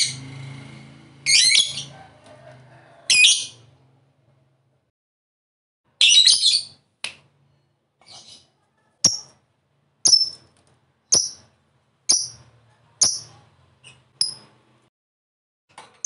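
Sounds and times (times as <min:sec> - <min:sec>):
lovebird chirping: 0:10.0 - 0:10.5, 0:11.1 - 0:11.5, 0:12.1 - 0:14.5.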